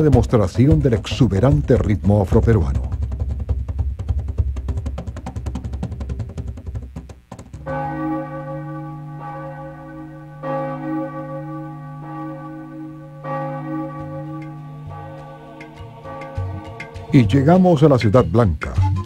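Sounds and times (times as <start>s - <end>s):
rhythmic percussion music: 0.0s - 8.0s, 13.0s - 19.0s
church bell tolling: 7.6s - 17.7s.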